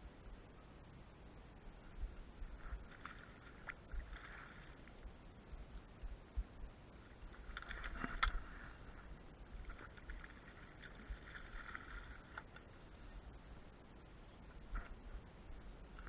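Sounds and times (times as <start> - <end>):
wind rumbling on microphone: 1.6 - 16.0.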